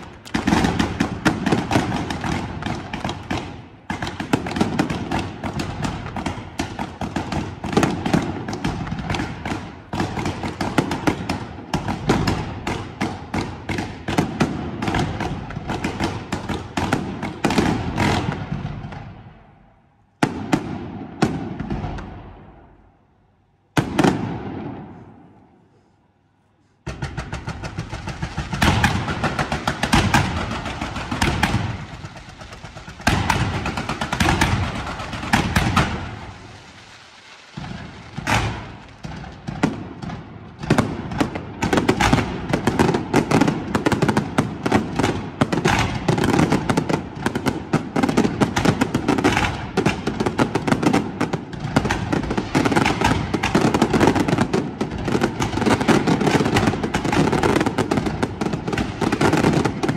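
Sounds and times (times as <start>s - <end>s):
fireworks cracking bangs: 0.0s - 23.0s, 23.6s - 59.9s.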